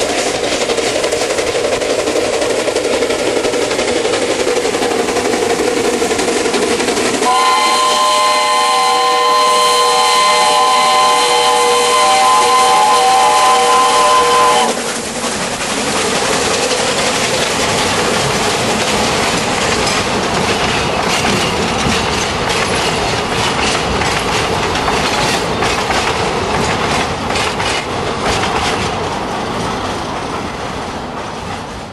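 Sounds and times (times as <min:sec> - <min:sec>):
train wheels clacking over rail joints: 0:00.0 - 0:31.9
steam locomotive whistle: 0:07.2 - 0:15.0.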